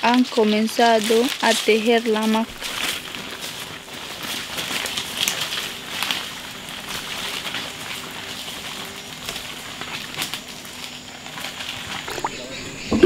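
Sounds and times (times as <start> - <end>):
crackles and clicks: 0.0 - 13.0
steady high hiss: 0.1 - 13.0
bird calls: 10.7 - 13.0.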